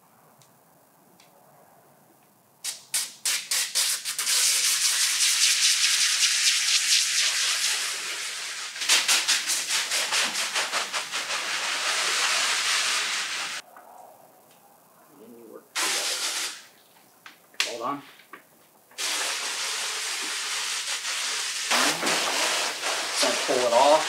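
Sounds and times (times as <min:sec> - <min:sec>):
sprayer misting liquid: 0:02.6 - 0:13.6, 0:15.8 - 0:16.7, 0:19.0 - 0:24.0.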